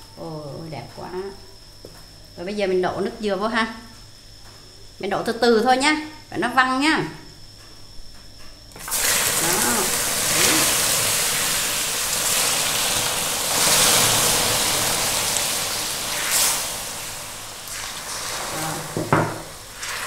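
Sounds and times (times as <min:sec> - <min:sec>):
liquid sizzling in hot caramel: 0:08.7 - 0:20.0.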